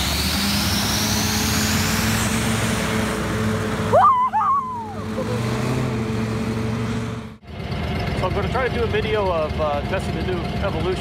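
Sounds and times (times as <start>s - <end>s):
hovercraft engine and fan running: 0.0s - 11.0s
loud warbling call: 3.9s - 5.5s.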